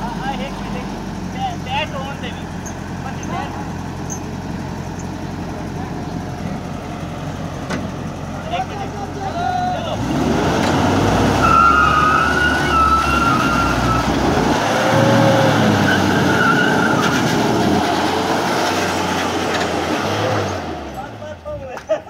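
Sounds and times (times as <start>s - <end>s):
engines revving under load: 0.0s - 21.9s
high wavering squeal: 11.4s - 14.1s.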